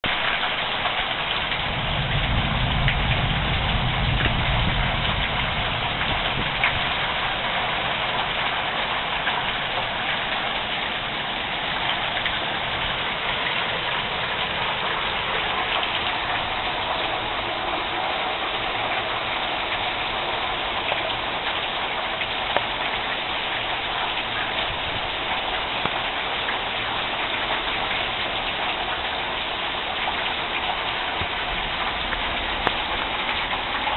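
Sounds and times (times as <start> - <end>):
heavy rain pouring: 0.0 - 33.9
low rumble: 1.7 - 7.0.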